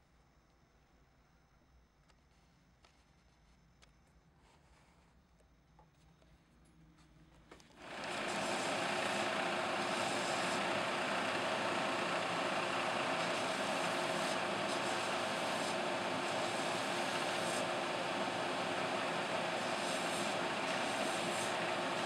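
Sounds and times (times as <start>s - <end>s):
belt sander running: 7.8s - 22.0s
shoe heel grinding on sander belt: 7.8s - 22.0s.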